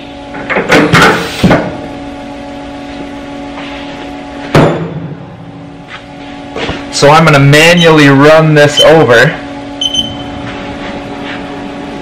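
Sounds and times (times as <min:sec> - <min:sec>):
machine humming: 0:01.6 - 0:12.0
sharp knock with rattle: 0:04.5 - 0:05.0.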